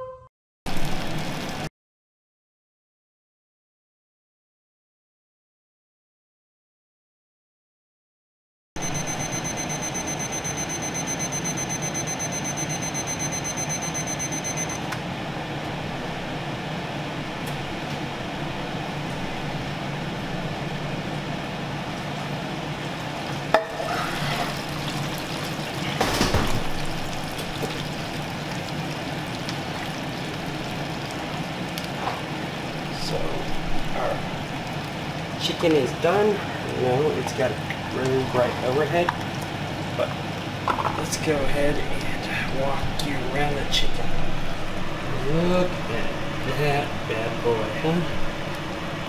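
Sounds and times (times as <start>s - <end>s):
thermometer alarm beeping: 8.8s - 14.9s.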